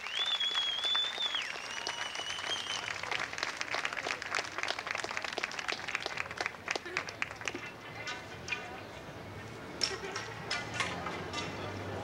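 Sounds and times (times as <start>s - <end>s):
long high whistles: 0.0s - 2.9s
audience applause: 0.0s - 7.6s.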